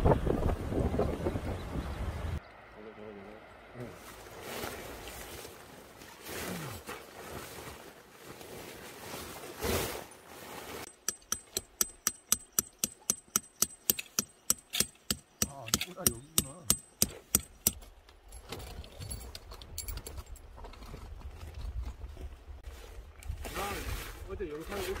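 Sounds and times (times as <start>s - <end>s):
tent fabric rustling: 3.9s - 10.9s
metal tent pegs hammered: 10.9s - 17.9s.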